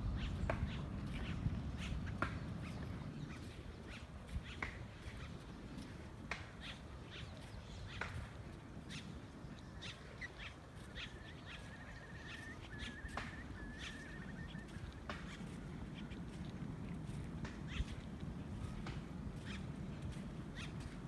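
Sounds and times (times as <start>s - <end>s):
short sharp bird calls: 0.1s - 16.3s, 20.5s - 21.0s.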